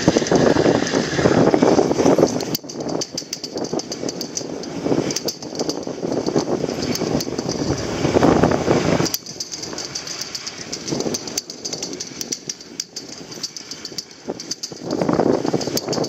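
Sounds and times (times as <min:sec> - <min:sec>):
skis scraping over snow: 0:00.0 - 0:02.5, 0:05.8 - 0:12.4
light rapid ticks: 0:02.2 - 0:07.9, 0:09.0 - 0:16.0.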